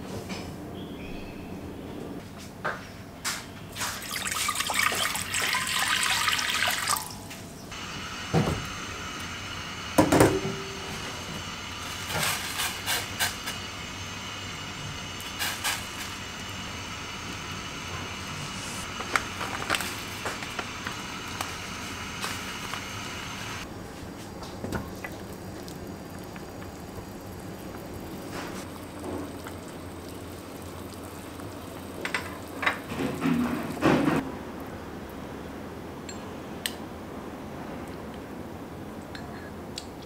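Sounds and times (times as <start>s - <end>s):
tap water running into pot: 3.8s - 7.2s, 24.4s - 34.2s
steady hum: 7.3s - 36.1s.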